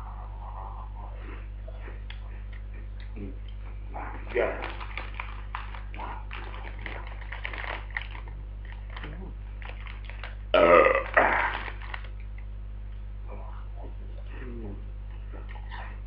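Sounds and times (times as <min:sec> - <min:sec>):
crisp packet rustling: 0:04.3 - 0:10.5, 0:11.2 - 0:12.2
loud belch: 0:10.6 - 0:11.7.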